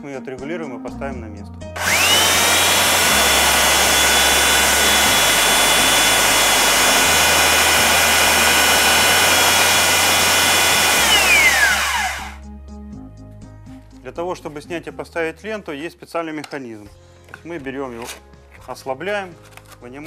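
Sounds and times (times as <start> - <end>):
belt sander running: 1.8 - 12.4.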